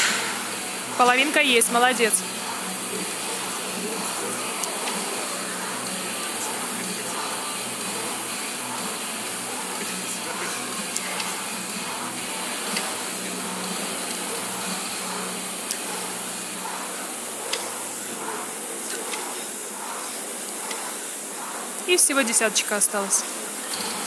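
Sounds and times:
rowing machine fan whooshing: 0.0 - 24.0
sharp machine clicks: 10.8 - 22.9.

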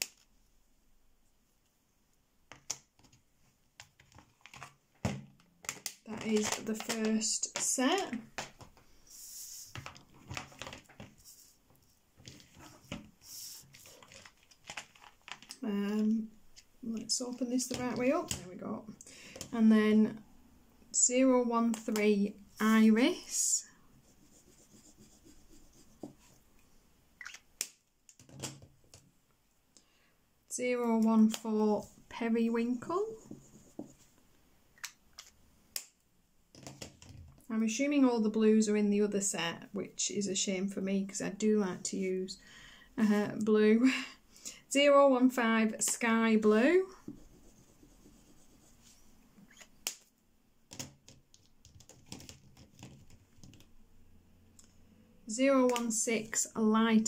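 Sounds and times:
crayon scrubbing on paper: 24.0 - 26.2, 47.0 - 49.0.

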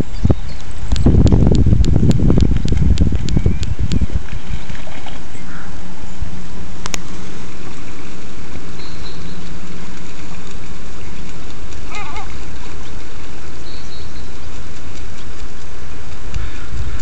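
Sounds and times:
low steady hum: 0.0 - 17.0
wind and water rumble: 0.0 - 17.0
gull call: 5.3 - 5.8, 11.8 - 13.0.

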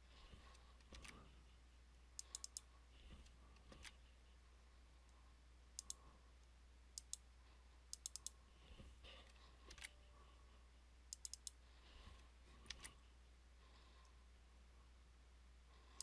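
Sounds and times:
low steady hum: 0.0 - 16.0
computer mouse clicks: 0.8 - 1.2, 2.2 - 4.0, 5.8 - 6.0, 6.9 - 7.3, 7.9 - 8.4, 9.7 - 10.0, 11.1 - 11.6, 12.6 - 13.0
keyboard clicks: 0.8 - 1.2, 2.2 - 2.7, 5.8 - 6.0, 7.0 - 7.2, 7.9 - 8.4, 11.1 - 11.6.

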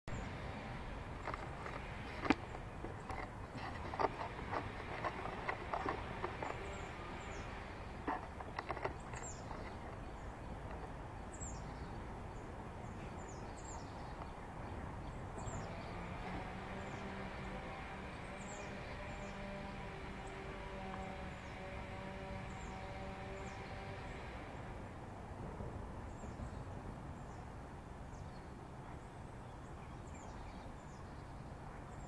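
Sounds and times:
bird chirping: 1.2 - 24.3.

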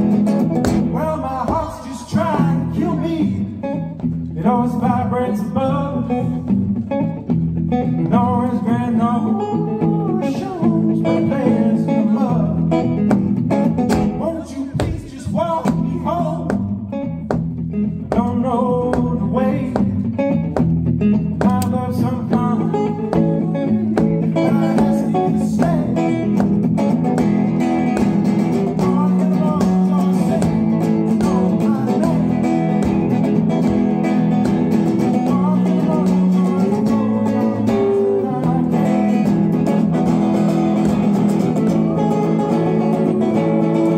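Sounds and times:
steady drum beat: 0.0 - 3.0, 13.0 - 43.0
guitar: 0.0 - 43.9
person singing: 0.8 - 6.5, 7.8 - 13.0, 13.9 - 16.8, 18.0 - 20.6, 21.4 - 43.9.

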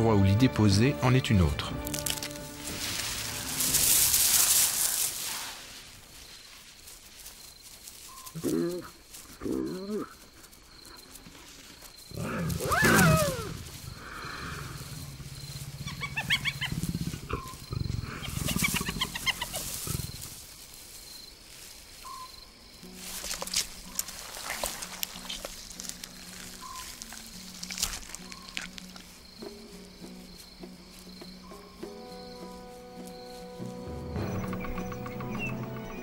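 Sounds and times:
hyenas calling: 12.1 - 20.3, 34.0 - 36.0
high rapid cackling: 15.8 - 20.1.

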